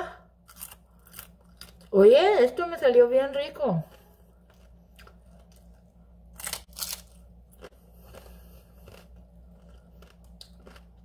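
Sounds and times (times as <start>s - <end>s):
crunching fried chips: 0.4s - 1.9s, 4.4s - 11.0s.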